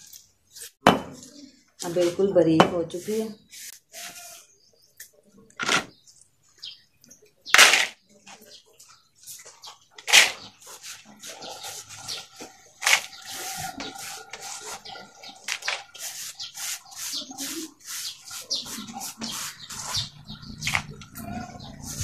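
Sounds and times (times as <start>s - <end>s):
dry clay scraping on concrete: 9.3s - 22.0s.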